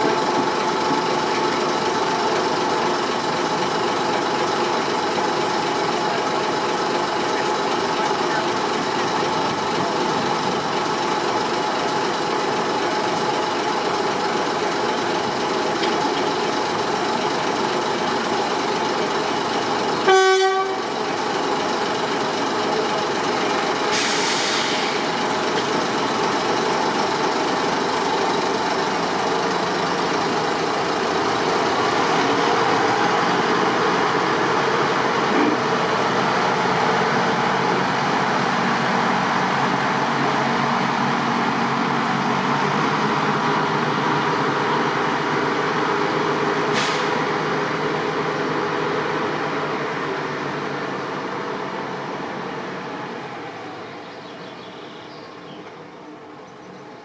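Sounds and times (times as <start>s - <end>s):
diesel locomotive running: 0.0s - 57.0s
short horn toot: 20.1s - 20.8s
brief hiss: 23.9s - 25.1s, 46.7s - 47.2s.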